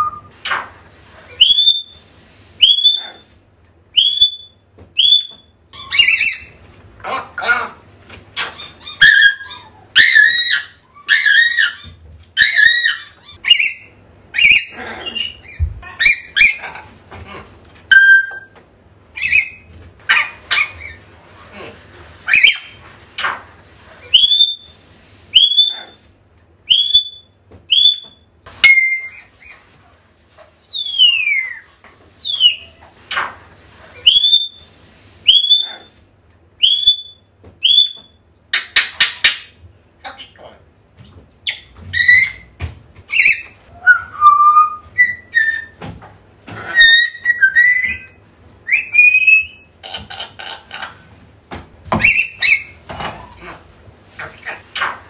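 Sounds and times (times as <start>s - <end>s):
parrot whistles: 0.0s - 0.3s, 1.4s - 2.0s, 2.6s - 3.2s, 4.0s - 6.6s, 17.9s - 18.6s, 24.1s - 24.7s, 25.4s - 26.0s, 26.7s - 29.6s, 30.7s - 32.7s, 34.0s - 34.6s, 35.3s - 35.9s, 36.6s - 38.2s, 43.1s - 45.8s, 46.7s - 49.7s
parrot squawks: 0.0s - 2.0s, 2.6s - 3.2s, 4.0s - 7.8s, 8.4s - 18.6s, 19.2s - 24.7s, 25.4s - 26.0s, 26.7s - 29.6s, 30.6s - 33.4s, 34.0s - 34.6s, 35.3s - 36.0s, 36.6s - 38.1s, 46.5s - 51.0s, 51.9s - 55.0s
parrot rattling calls: 4.0s - 18.5s, 19.2s - 24.7s.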